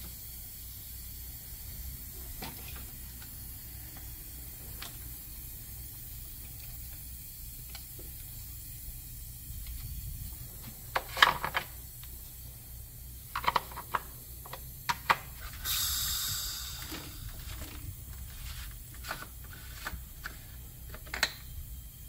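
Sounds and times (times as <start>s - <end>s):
compressed air hiss: 0.0s - 22.0s
low hum: 15.4s - 22.0s.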